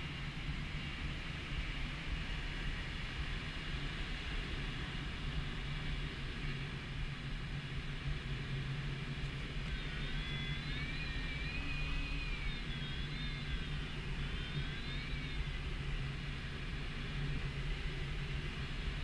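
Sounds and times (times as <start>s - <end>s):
airflow rushing over glider canopy: 0.0s - 19.0s
wavering whistle-like tone: 9.6s - 16.4s.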